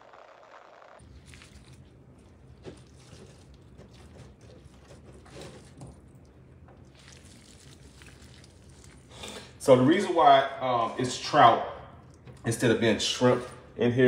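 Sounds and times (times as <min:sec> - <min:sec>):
low steady hum: 0:00.0 - 0:14.0
gloved hands rustling and squishing: 0:01.0 - 0:09.2.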